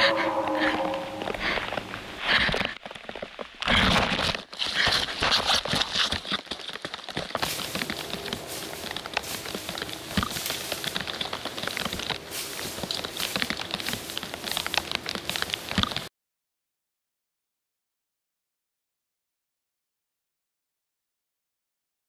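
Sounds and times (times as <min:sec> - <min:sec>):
rustling in dry grass: 0:00.0 - 0:16.1.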